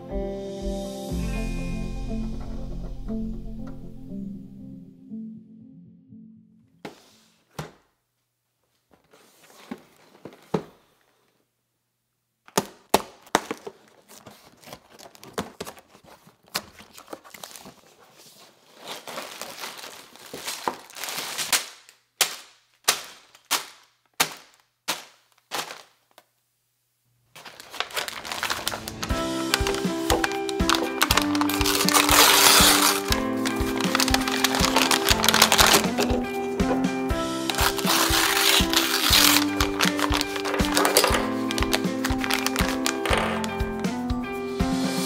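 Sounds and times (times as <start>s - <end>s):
paper crinkling: 8.7s - 11.2s, 12.7s - 26.3s, 27.3s - 36.8s, 37.4s - 43.8s
cardboard snapping and ripping: 12.5s - 17.8s, 18.8s - 25.9s, 27.4s - 36.2s, 37.5s - 43.6s
paper bags snapping: 12.5s - 26.3s, 27.3s - 43.8s
cardboard box rustling: 13.3s - 21.5s, 27.4s - 36.8s, 37.5s - 43.2s.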